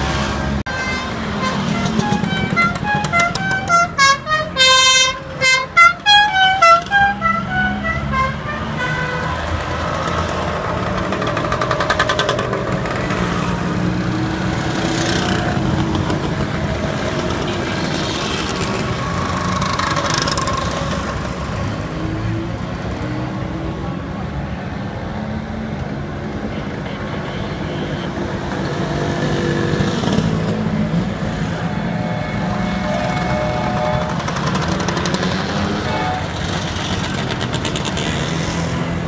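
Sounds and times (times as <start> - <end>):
motor scooters passing and revving: 0.0 - 3.7, 6.9 - 24.1, 28.3 - 39.0
horn tooting notes: 0.7 - 9.5, 31.7 - 36.6.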